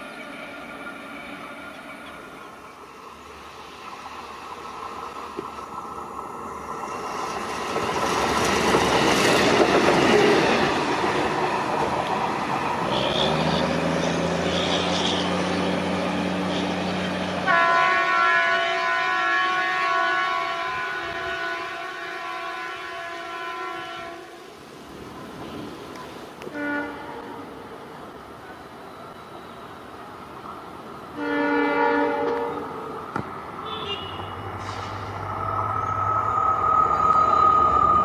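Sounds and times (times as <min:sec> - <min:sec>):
locomotive rolling past: 0:00.0 - 0:33.7, 0:34.3 - 0:38.0
locomotive horn chord: 0:17.4 - 0:24.3, 0:26.5 - 0:27.3, 0:31.2 - 0:32.6.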